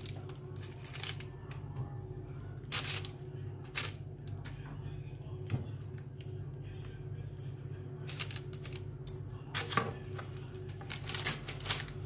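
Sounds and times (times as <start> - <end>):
baking paper rustling: 0.0 - 1.7, 2.6 - 4.0, 9.5 - 12.0
steady low hum: 0.0 - 12.0.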